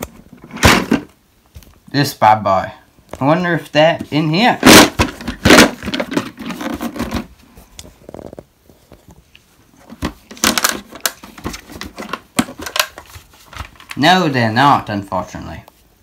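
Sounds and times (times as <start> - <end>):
plastic case knocks and rattles: 0.1 - 1.2, 4.6 - 7.3, 9.8 - 13.9.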